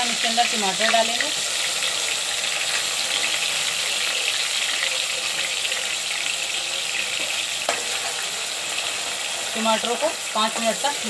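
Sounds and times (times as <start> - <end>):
tomatoes sizzling in oil: 0.0 - 11.0.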